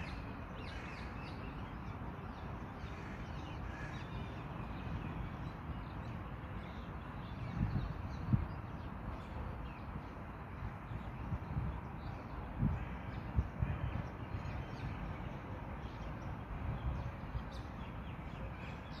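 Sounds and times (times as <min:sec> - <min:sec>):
low wind rumble: 0:00.0 - 0:19.0.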